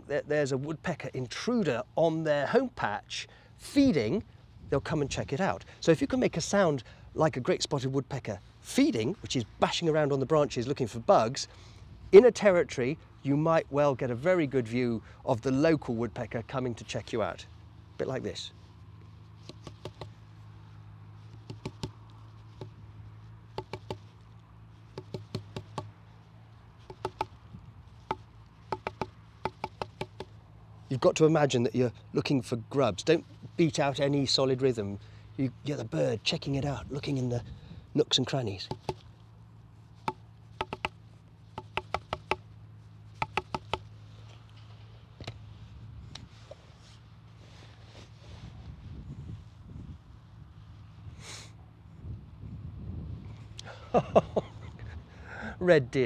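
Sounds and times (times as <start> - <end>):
taps and knocks on wooden branch: 19.4 - 20.2, 21.3 - 22.8, 23.5 - 24.1, 24.9 - 25.9, 26.8 - 27.4, 28.0 - 30.4, 38.7 - 39.1, 40.0 - 42.5, 43.2 - 43.9.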